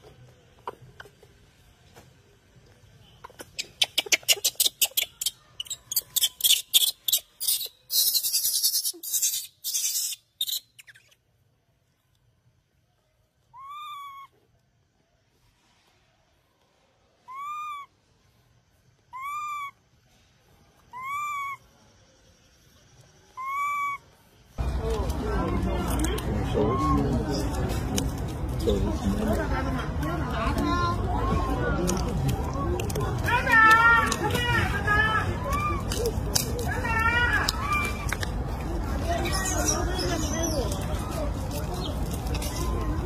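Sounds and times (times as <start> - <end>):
baby monkey cooing: 3.2 - 11.2, 13.4 - 14.5, 17.2 - 18.0, 19.0 - 19.8, 20.9 - 21.7, 23.3 - 24.2, 26.4 - 27.2.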